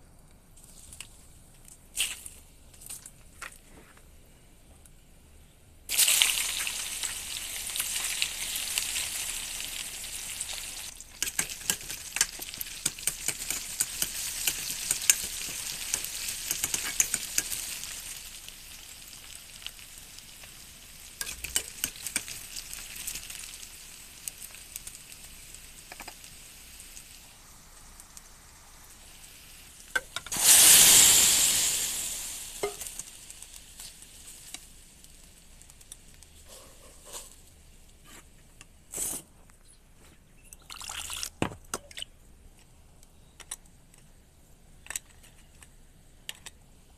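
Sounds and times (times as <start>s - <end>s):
loud hiss of food poured into oil: 5.9s - 35.6s
onions sizzling in hot oil: 5.9s - 38.0s
spatula clicking and scraping: 11.1s - 17.6s, 21.2s - 22.4s.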